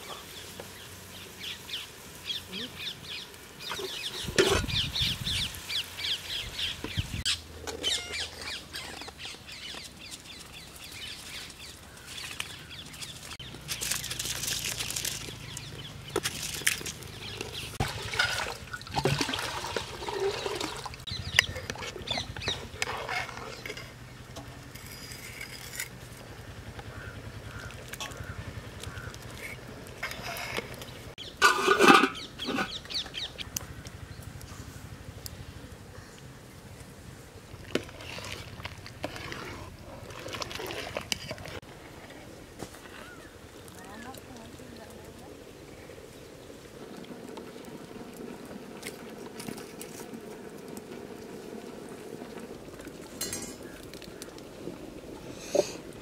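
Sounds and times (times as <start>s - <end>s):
birds chirping: 0.0s - 18.2s, 19.9s - 24.3s, 26.6s - 34.6s.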